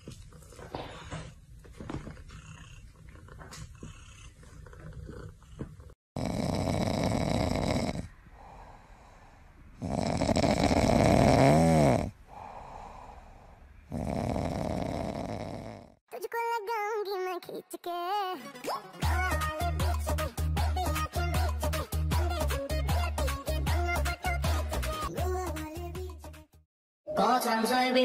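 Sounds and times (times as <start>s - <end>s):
cat snoring: 2.0s - 16.0s.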